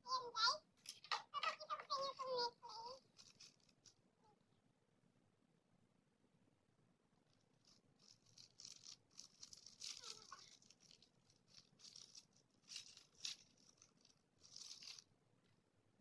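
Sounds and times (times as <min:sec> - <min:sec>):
plastic wrapper crinkling: 0:02.9 - 0:04.0, 0:07.6 - 0:15.1.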